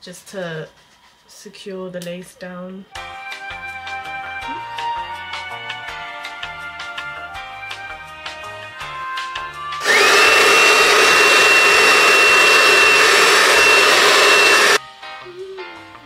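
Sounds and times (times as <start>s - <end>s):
hair dryer motor whine: 9.8s - 14.8s.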